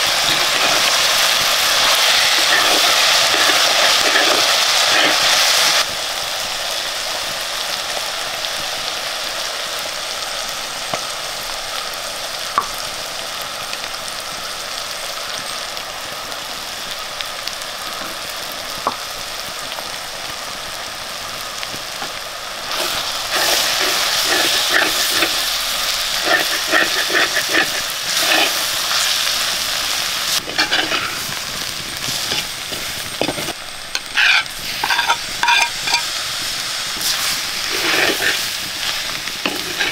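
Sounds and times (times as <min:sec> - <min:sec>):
stirring and scraping in pan: 0:00.0 - 0:05.8, 0:22.0 - 0:36.2, 0:36.9 - 0:39.9
food sizzling in oil: 0:00.0 - 0:39.9.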